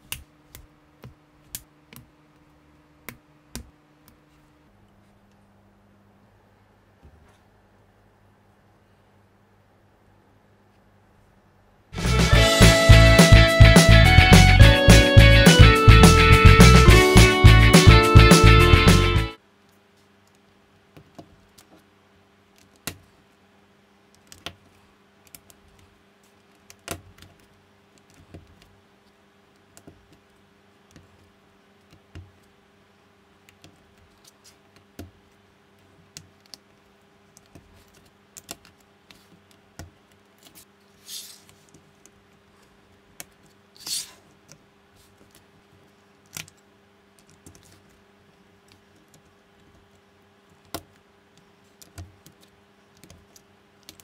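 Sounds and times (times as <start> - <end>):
faint steady hum: 0.0 - 54.0
rustling scrapes: 40.5 - 41.7, 43.8 - 44.2.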